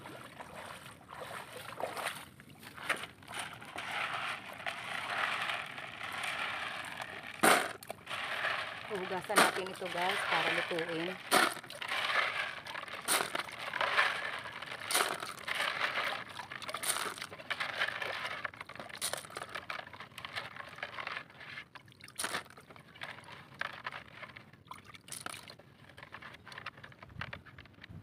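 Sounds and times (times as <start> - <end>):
water sloshing in a bucket: 0.0 - 27.3.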